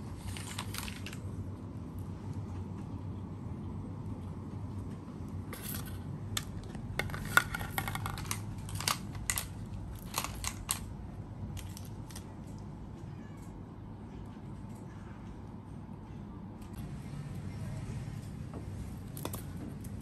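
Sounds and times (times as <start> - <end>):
low steady hum: 0.0 - 20.0
plastic toys clattering on tiles: 0.2 - 1.2, 5.6 - 10.9, 11.5 - 12.6.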